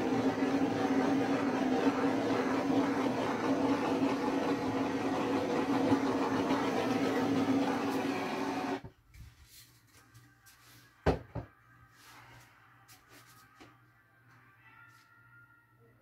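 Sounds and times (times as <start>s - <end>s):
gas torch flame hissing: 0.0s - 8.8s.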